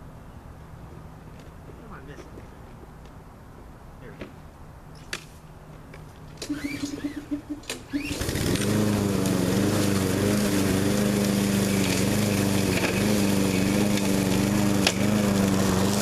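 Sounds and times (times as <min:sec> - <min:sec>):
mower engine starting: 0:06.4 - 0:16.0.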